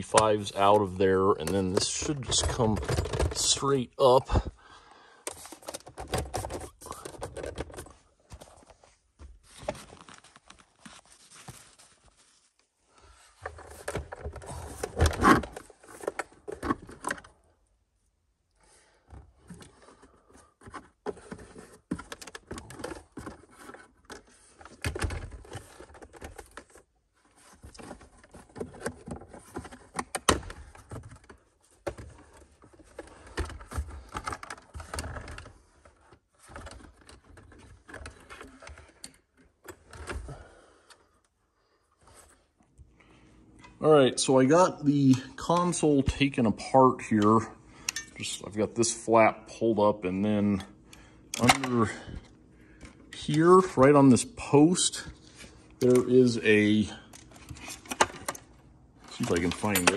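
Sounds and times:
plastic clicks rattles and scrapes: 0.0s - 3.6s, 5.3s - 8.0s, 19.5s - 40.2s, 57.1s - 59.9s.

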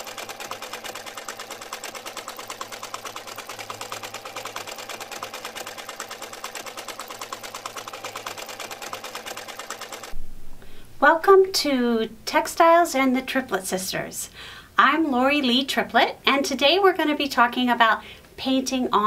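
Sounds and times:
toy sewing machine clattering: 0.0s - 10.1s.

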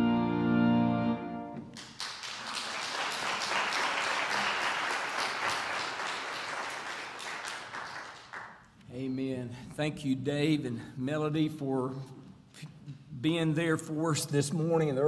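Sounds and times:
keyboard chord: 0.0s - 1.7s
congregation applauding: 1.6s - 8.8s.

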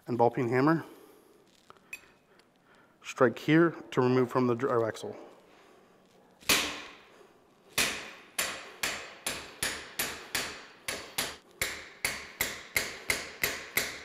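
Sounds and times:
hammer striking steel punch: 6.5s - 7.0s, 7.8s - 14.0s.

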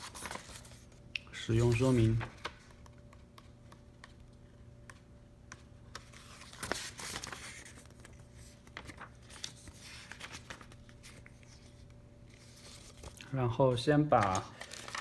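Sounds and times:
paper pages rustling: 0.0s - 3.3s, 5.5s - 13.3s, 14.0s - 15.0s.

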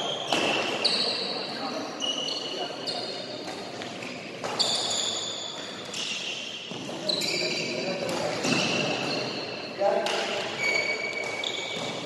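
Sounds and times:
shoes squeaking on court floor: 0.0s - 12.0s
racket hitting shuttlecock: 0.3s - 0.8s, 3.4s - 4.9s.

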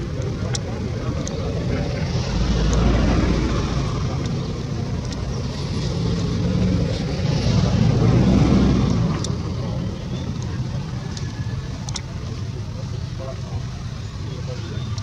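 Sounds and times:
vehicle engine rumble: 0.0s - 15.0s.

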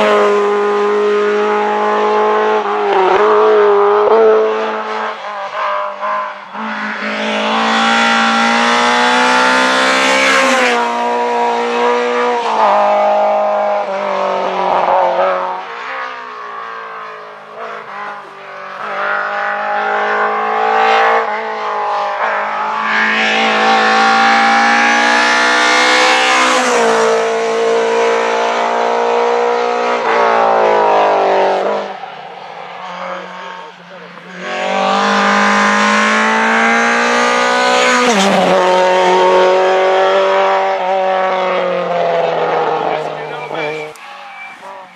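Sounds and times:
rally car engines at full throttle: 0.0s - 44.9s.

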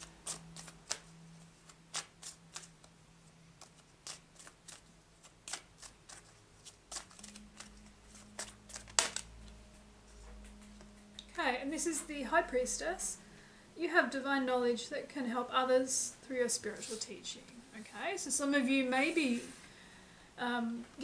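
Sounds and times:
cards being shuffled: 0.0s - 2.9s, 3.6s - 9.4s.

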